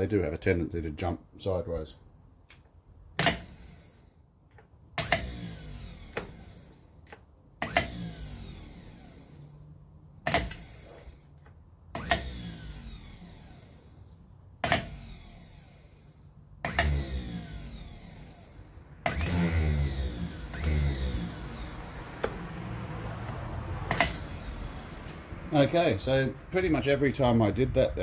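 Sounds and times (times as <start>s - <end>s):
starter motor clacking and whirring: 3.2s - 9.6s, 10.2s - 25.3s.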